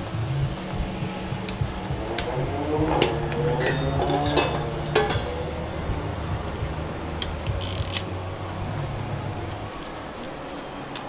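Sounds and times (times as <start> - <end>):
steady low hum: 0.0 - 11.0
ratchet clinking on metal pan: 3.6 - 5.5.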